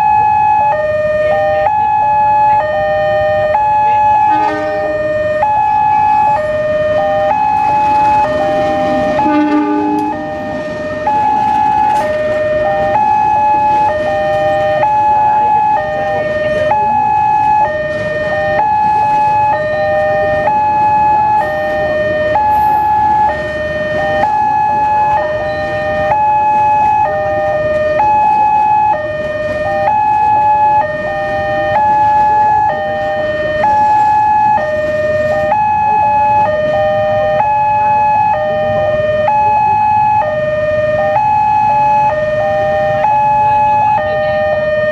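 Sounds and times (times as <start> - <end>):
two-tone level crossing alarm: 0.0 - 44.9
train rumbling on rails: 2.5 - 39.3, 40.2 - 44.9.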